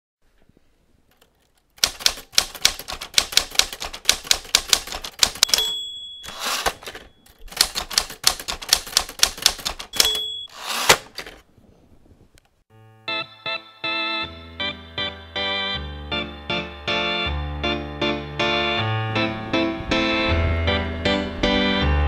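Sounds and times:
typewriter keystrokes: 0:01.2 - 0:11.4
typewriter bell: 0:04.5 - 0:10.7.

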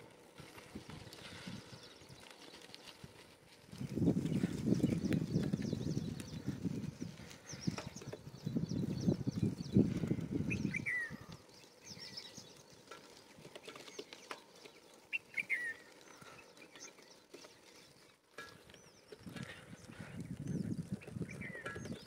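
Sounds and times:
low crackling rumble: 0:00.0 - 0:22.0
small birds chirping: 0:00.5 - 0:22.0
descending bird call: 0:13.6 - 0:20.0.

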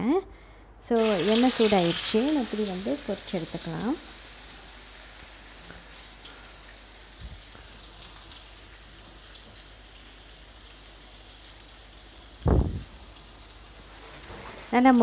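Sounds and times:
fish sizzling in hot oil: 0:01.0 - 0:15.0
loud thump: 0:12.5 - 0:12.8.

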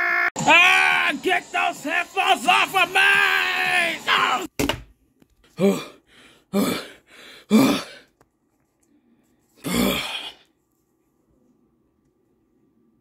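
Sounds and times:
man grunting or gasping: 0:05.5 - 0:08.1, 0:09.6 - 0:10.4.

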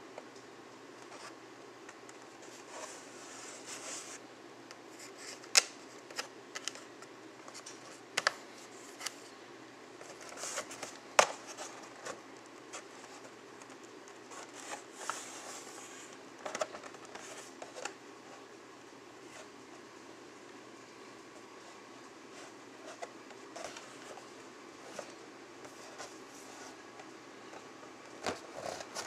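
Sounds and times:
crinkling rustle: 0:10.0 - 0:18.0.

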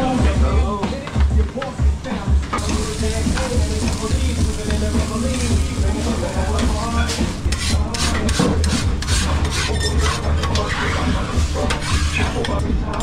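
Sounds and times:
grill bars being scraped: 0:06.0 - 0:12.5.

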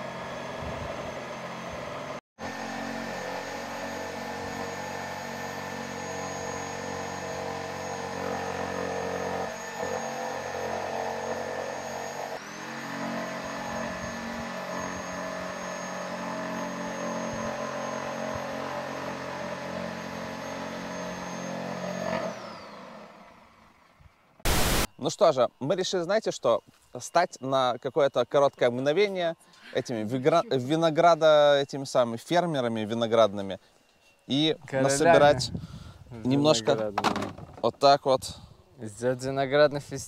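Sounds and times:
power saw cutting wood: 0:00.0 - 0:23.9, 0:24.5 - 0:24.9.

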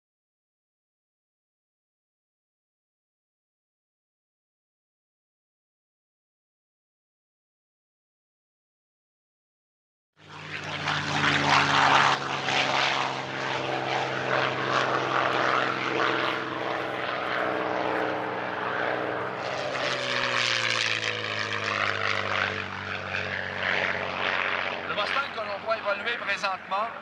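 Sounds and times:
propeller plane engine drone: 0:10.2 - 0:27.0.

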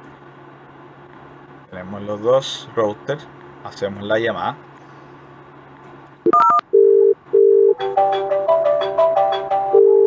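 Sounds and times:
phone ringback tone: 0:06.3 - 0:07.8, 0:09.7 - 0:10.0
ringtone melody: 0:07.8 - 0:10.0.

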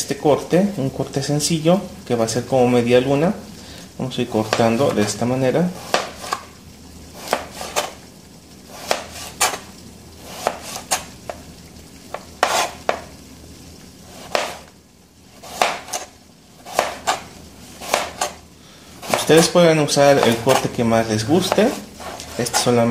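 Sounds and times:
knife slicing carrot: 0:04.4 - 0:06.5, 0:07.2 - 0:08.0, 0:08.7 - 0:11.4, 0:12.1 - 0:13.1, 0:14.1 - 0:14.7, 0:15.4 - 0:18.4, 0:19.0 - 0:22.8.

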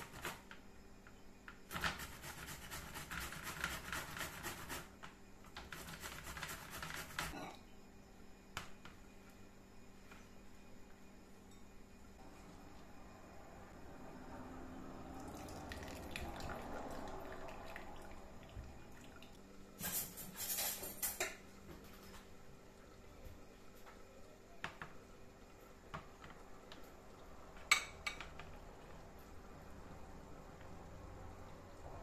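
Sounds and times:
juice dripping into a bowl: 0:15.1 - 0:19.6.

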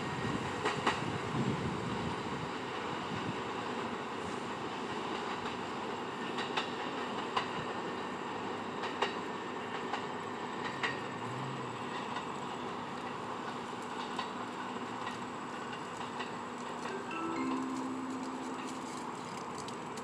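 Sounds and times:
subway train rumbling: 0:00.0 - 0:20.0
wheels clacking over rail joints: 0:04.8 - 0:20.0.

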